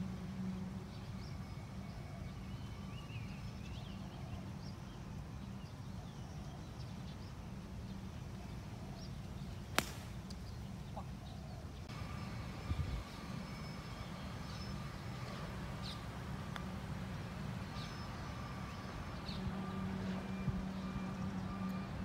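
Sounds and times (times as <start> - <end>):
golf club striking ball: 9.8 - 10.4.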